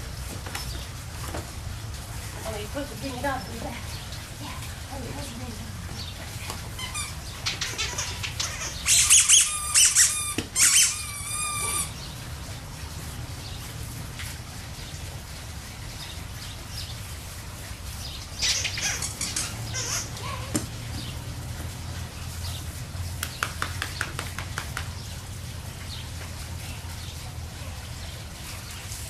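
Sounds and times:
high-pitched wavering squeaks: 6.8 - 12.0.

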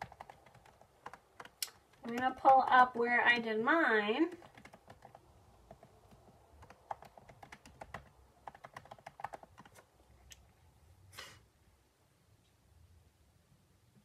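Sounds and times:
typing on computer keyboard: 0.0 - 3.1, 4.2 - 9.9.

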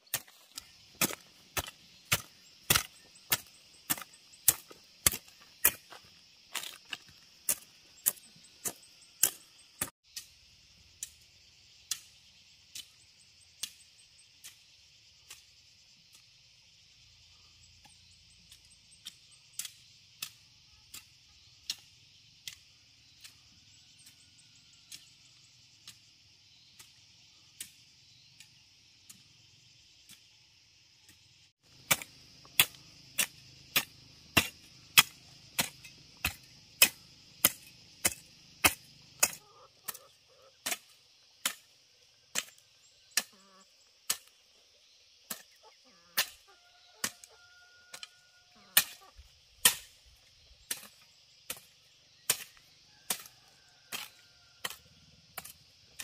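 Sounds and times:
insects droning: 0.0 - 56.0
hand tool strikes: 0.1 - 6.0, 31.8 - 40.0.

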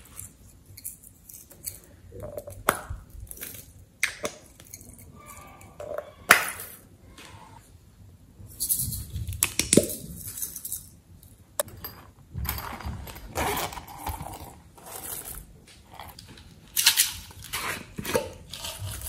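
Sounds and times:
rubber toys rubbing and rustling: 12.6 - 19.0.

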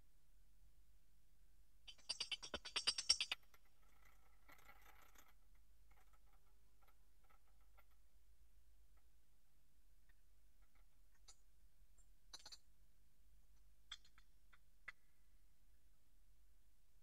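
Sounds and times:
faint crackles and ticks: 1.9 - 8.2, 10.0 - 12.7, 13.6 - 15.1.

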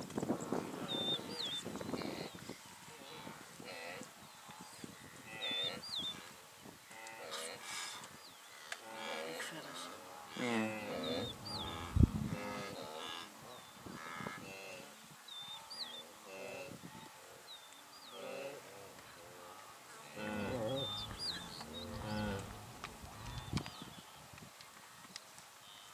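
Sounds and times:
small birds chirping: 0.4 - 2.5, 4.2 - 6.8, 9.5 - 12.8, 20.1 - 24.2
cattle lowing: 9.4 - 13.3, 20.2 - 23.6.

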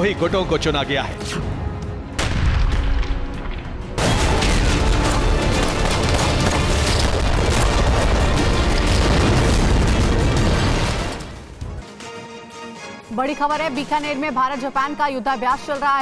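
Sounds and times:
dramatic music with booming hits: 0.1 - 11.9
sharp bangs: 2.2 - 11.6.

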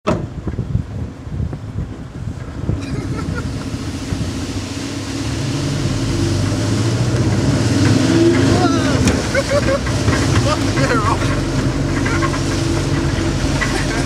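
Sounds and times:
wind noise on microphone: 0.1 - 10.4
vehicle engine running: 1.2 - 14.0.

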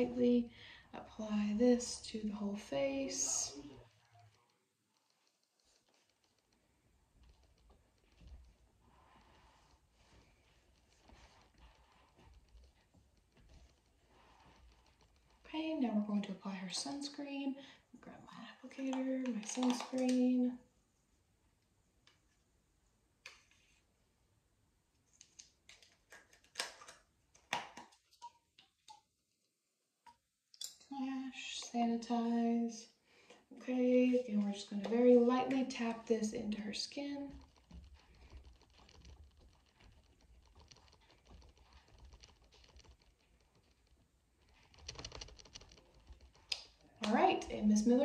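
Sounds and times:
small plastic clicks and rustles: 3.8 - 15.6, 18.8 - 20.4, 25.1 - 29.0, 34.7 - 48.0.

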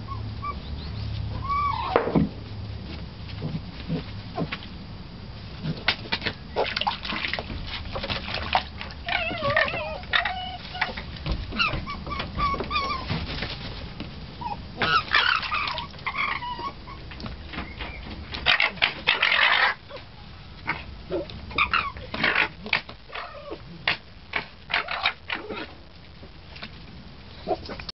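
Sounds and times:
fox cubs whining and squealing: 0.0 - 2.0, 9.0 - 13.2, 14.4 - 23.7, 24.4 - 25.8.

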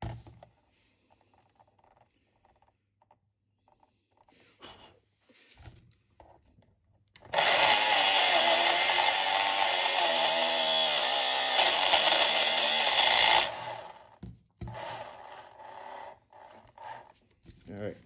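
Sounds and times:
tool grinding spinning wheel: 7.2 - 17.2.

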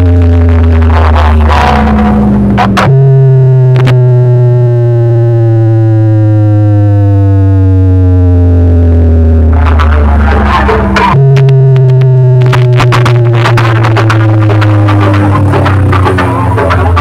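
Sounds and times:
loud electronic dance music: 7.9 - 17.0.

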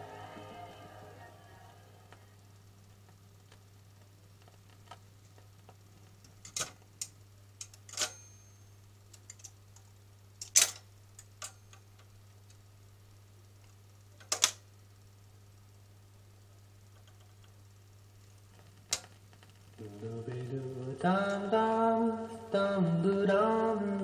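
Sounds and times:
steady low hum: 0.0 - 24.0
record changer clicks and clunks: 14.2 - 14.7.

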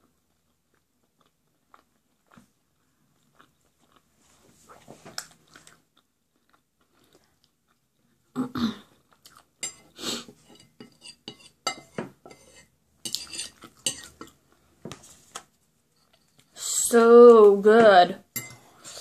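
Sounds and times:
chewing: 0.0 - 8.3, 8.9 - 9.9, 13.2 - 14.7
fork scraping dinner plate: 9.6 - 14.3.

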